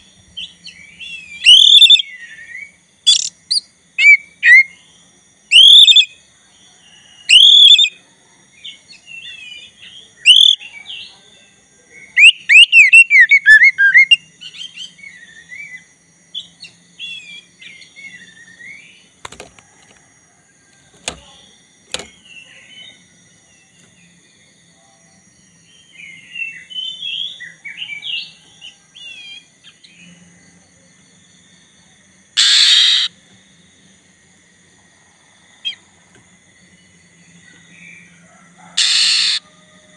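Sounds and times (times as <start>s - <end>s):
songbird whistled singing: 0.0s - 4.8s, 5.5s - 6.2s, 7.3s - 8.0s, 8.6s - 11.1s, 12.0s - 19.1s, 25.6s - 30.1s, 38.8s - 39.5s.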